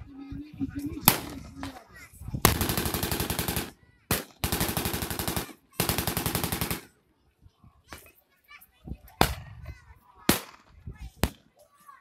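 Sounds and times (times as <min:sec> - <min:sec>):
machine gun firing bursts: 0:02.5 - 0:06.9.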